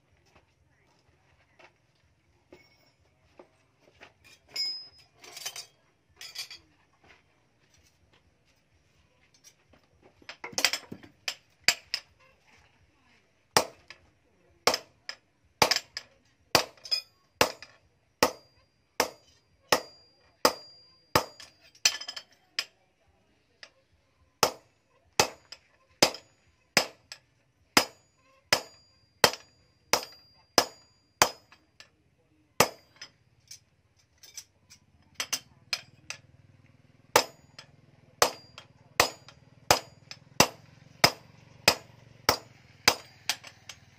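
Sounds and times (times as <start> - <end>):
sledgehammer striking metal on anvil: 13.6 - 14.0, 14.6 - 16.0, 16.6 - 22.3, 24.4 - 27.2, 27.8 - 31.7, 32.6 - 33.2, 35.2 - 36.3, 37.1 - 43.9.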